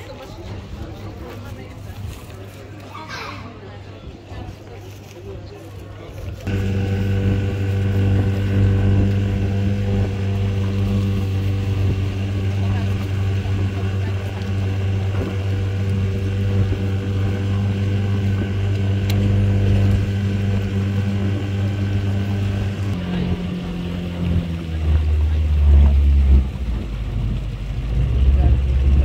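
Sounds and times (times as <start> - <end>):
outboard motor running: 6.1 - 29.0.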